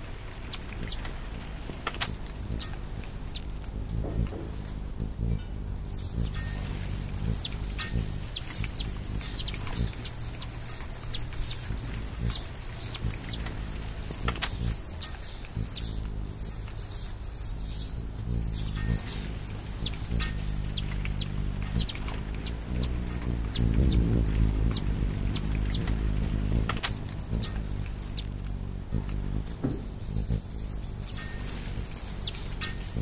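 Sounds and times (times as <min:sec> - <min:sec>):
high insect trill: 0:00.0 - 0:33.0
low steady drone: 0:00.0 - 0:33.0
short scattered chirps: 0:18.4 - 0:33.0.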